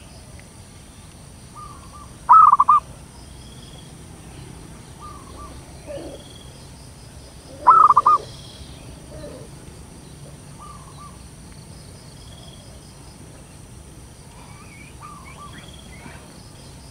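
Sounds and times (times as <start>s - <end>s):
distant dove coos: 1.6s - 2.9s, 4.4s - 6.7s, 7.3s - 11.2s, 14.3s - 16.3s
dove cooing: 1.6s - 2.9s, 4.4s - 6.6s, 7.4s - 11.2s, 14.4s - 16.3s.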